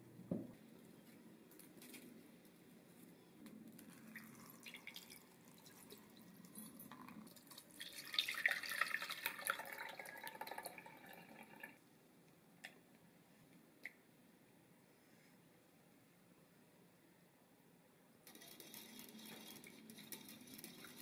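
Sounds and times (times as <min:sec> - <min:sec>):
liquid pouring through a sieve: 0:03.8 - 0:11.8, 0:18.3 - 0:21.0.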